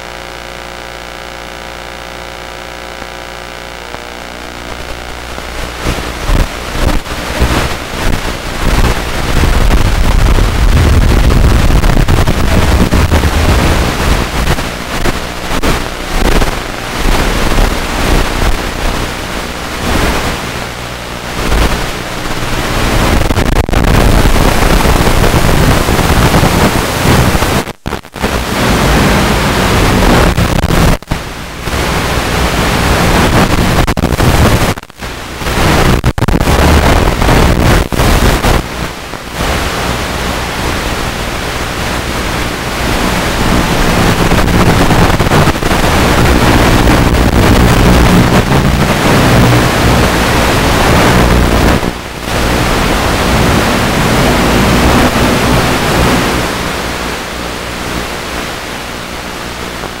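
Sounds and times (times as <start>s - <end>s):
low buzz: 0.0s - 23.4s, 28.4s - 60.0s
static hiss: 0.0s - 60.0s.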